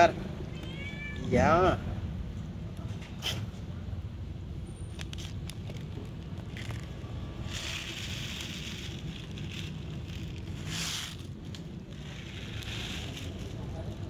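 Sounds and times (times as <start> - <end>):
rustling noise: 4.9 - 14.0.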